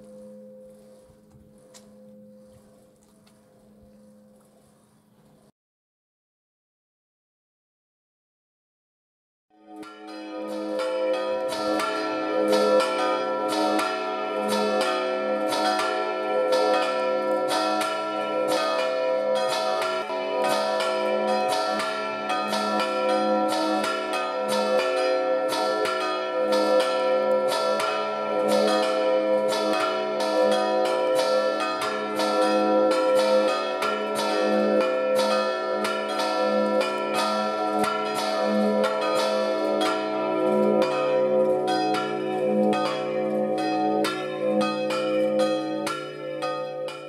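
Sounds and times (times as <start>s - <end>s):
church bells pealing: 0.0s - 4.6s, 9.6s - 47.0s
deep bell tolling: 9.8s - 47.0s.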